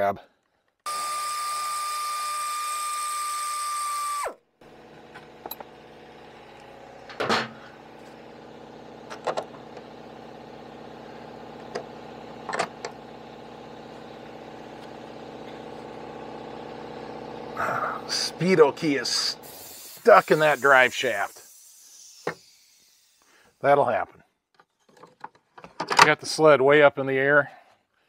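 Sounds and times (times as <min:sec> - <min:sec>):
power drill spinning: 0:00.8 - 0:23.7.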